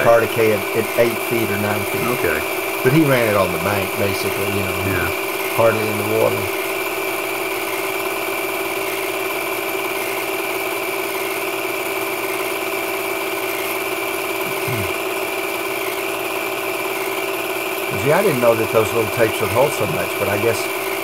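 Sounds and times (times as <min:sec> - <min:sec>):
film projector whirring: 0:00.0 - 0:21.0.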